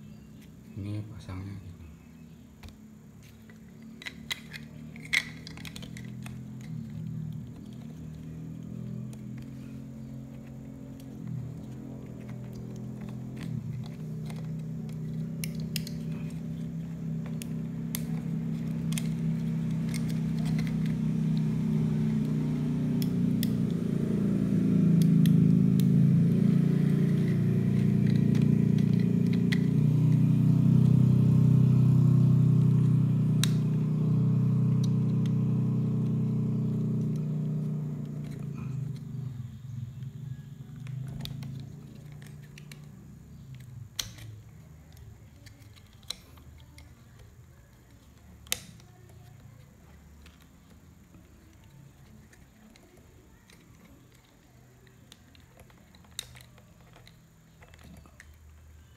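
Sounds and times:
light plastic clicks: 34.7s - 58.9s.

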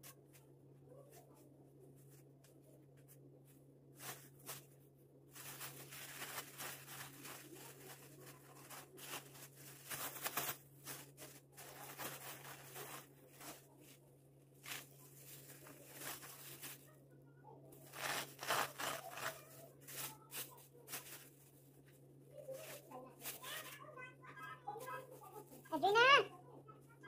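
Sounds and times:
plastic bags crinkling: 4.0s - 14.0s, 14.6s - 16.9s, 17.8s - 21.7s.

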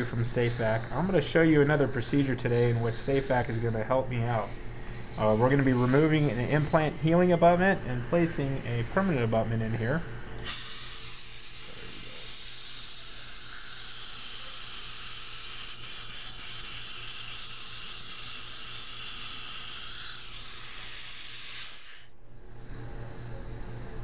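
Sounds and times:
dental suction hissing: 3.5s - 22.2s.

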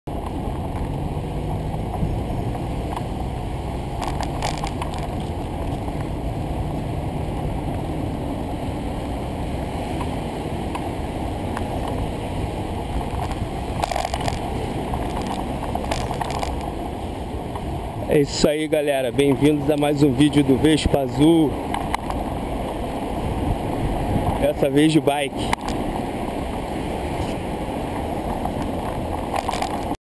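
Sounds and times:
wind rush on microphone: 0.1s - 30.0s
bicycle clicks and rattles: 3.9s - 6.1s, 12.9s - 16.8s, 21.6s - 22.8s, 25.4s - 25.8s, 27.2s - 30.0s.

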